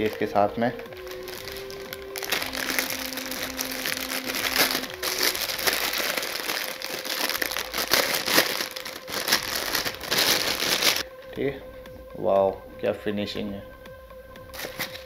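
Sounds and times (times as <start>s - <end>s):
plastic packaging crinkling: 1.0s - 11.0s, 14.5s - 15.0s.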